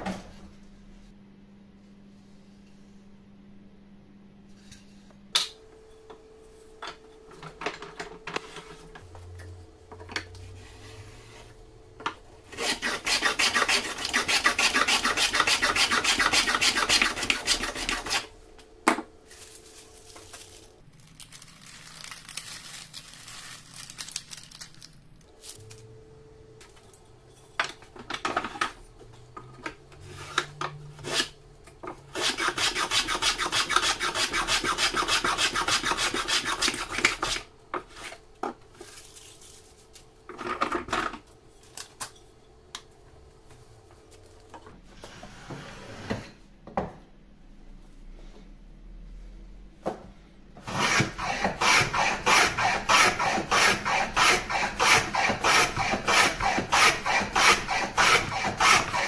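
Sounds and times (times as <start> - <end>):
hand plane shaving wood: 12.5 - 18.3, 32.1 - 37.4, 50.6 - 59.0.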